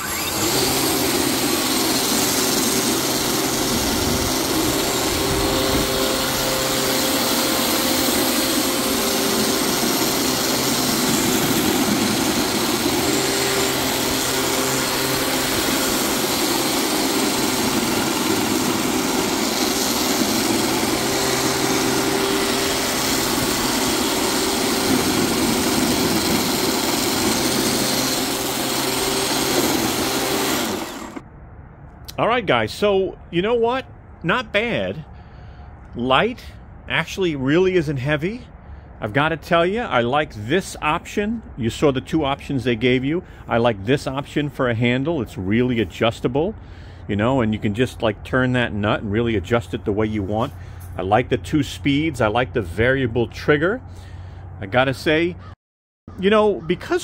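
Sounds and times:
electric snow shovel humming: 0:00.0 - 0:31.2.

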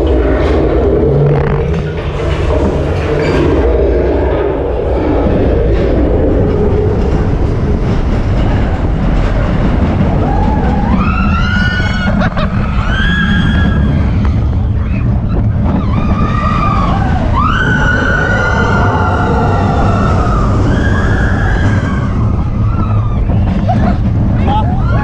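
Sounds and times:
roller coaster rumble: 0:00.0 - 0:25.0
riders screaming: 0:10.2 - 0:23.6.

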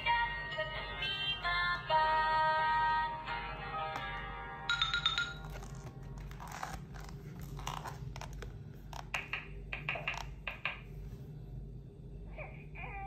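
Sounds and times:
board book pages turning: 0:05.4 - 0:09.2.

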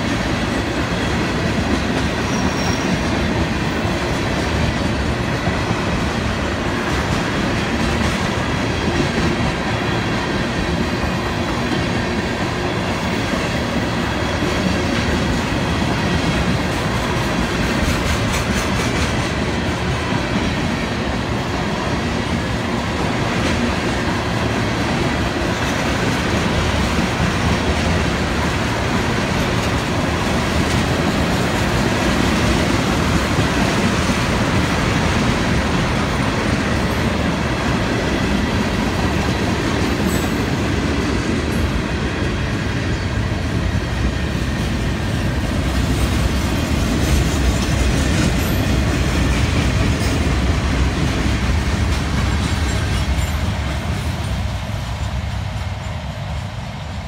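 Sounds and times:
train wheels rumbling on rails: 0:00.0 - 0:57.0.

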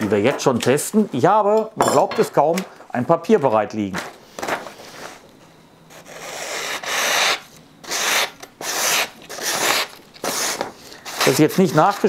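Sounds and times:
knife slicing paper: 0:06.1 - 0:12.0.

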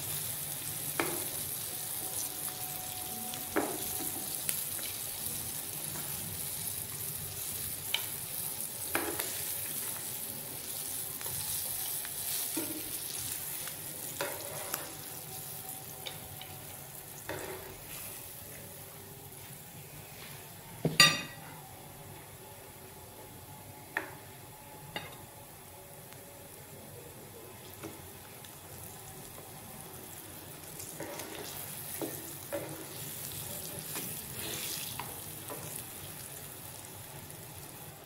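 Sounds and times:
meat sizzling in oil: 0:00.0 - 0:18.4, 0:28.4 - 0:38.0.

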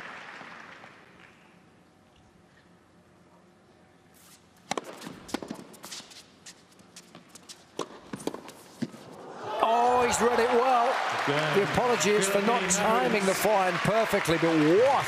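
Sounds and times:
shoes squeaking on court: 0:04.2 - 0:09.2
racket hitting tennis ball: 0:04.6 - 0:06.2, 0:07.1 - 0:09.1
crowd cheering and applauding: 0:09.4 - 0:15.0.

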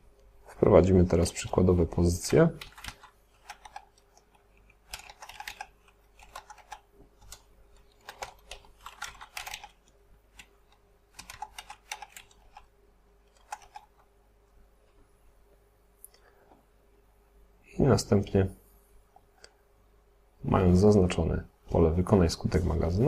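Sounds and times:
computer keyboard typing: 0:02.3 - 0:12.7, 0:13.3 - 0:14.1.

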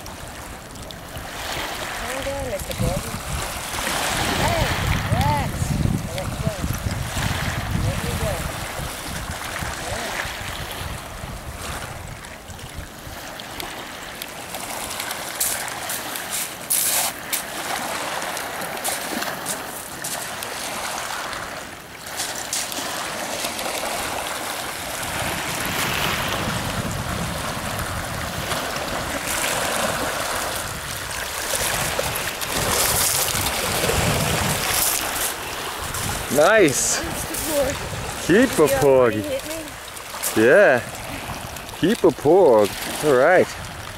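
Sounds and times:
wind buffeting microphone: 0:00.0 - 0:13.4, 0:24.0 - 0:43.9
waves lapping on pebbles: 0:00.0 - 0:43.9.

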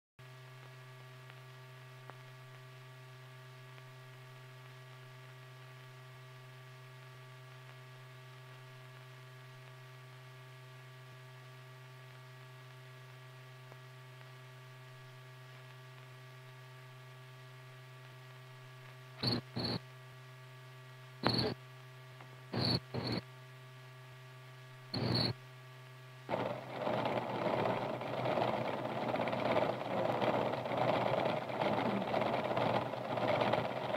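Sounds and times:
low electrical hum: 0:00.2 - 0:33.9
computer-room machinery noise: 0:19.2 - 0:19.8, 0:21.2 - 0:21.6, 0:22.5 - 0:23.3, 0:24.9 - 0:25.4, 0:26.3 - 0:33.9.

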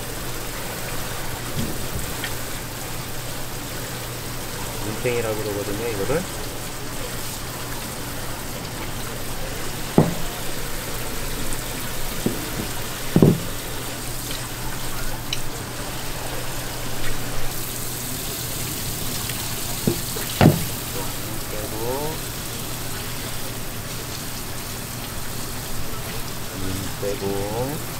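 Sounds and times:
water running from a tap: 0:00.0 - 0:27.9
sharp knocks: 0:10.0 - 0:10.6, 0:12.2 - 0:13.7, 0:19.9 - 0:20.9.

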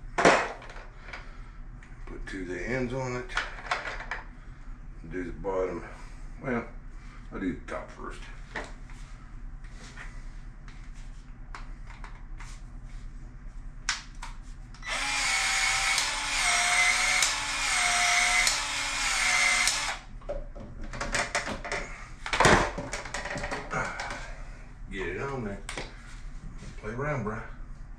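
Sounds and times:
pipe expansion tool motor: 0:14.8 - 0:20.1.

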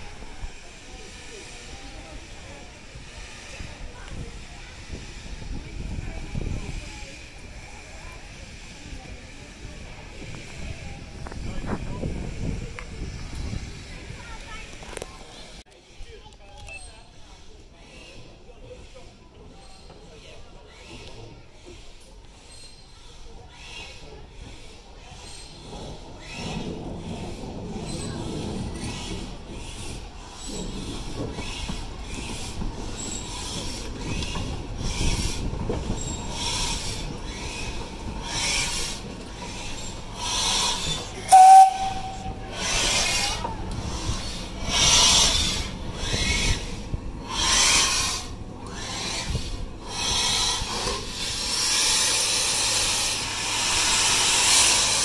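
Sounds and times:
steam hissing: 0:00.0 - 0:14.6, 0:23.6 - 0:55.0
steam locomotive chuffing: 0:00.0 - 0:16.2, 0:17.2 - 0:55.0
locomotive whistle toot: 0:41.2 - 0:42.6.

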